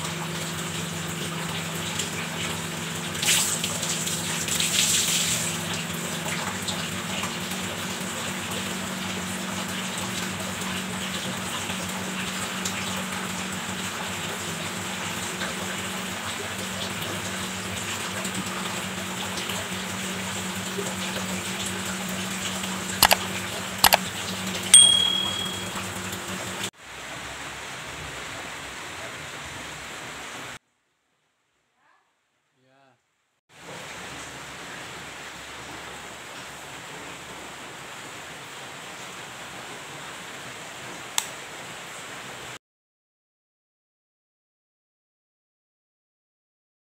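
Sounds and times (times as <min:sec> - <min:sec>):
water splashing and running: 0:00.0 - 0:26.7
short ringing clank: 0:24.8 - 0:25.8.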